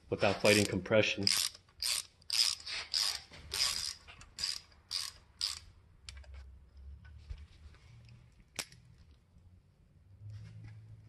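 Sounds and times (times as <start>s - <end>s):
ratchet wrench clicking: 0.5s - 6.2s.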